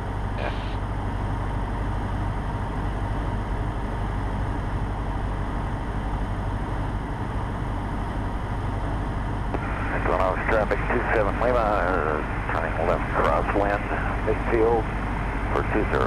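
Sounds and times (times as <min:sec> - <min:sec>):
light aircraft engine and propeller: 0:00.0 - 0:16.0
airflow noise: 0:07.9 - 0:16.0.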